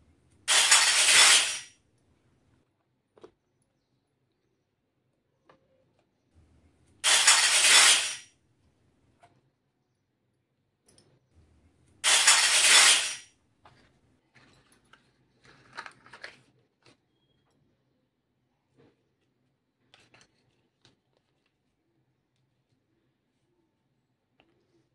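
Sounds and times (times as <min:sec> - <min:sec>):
toy kitchenware clicking: 0:00.5 - 0:01.7, 0:07.0 - 0:08.2, 0:12.0 - 0:13.2.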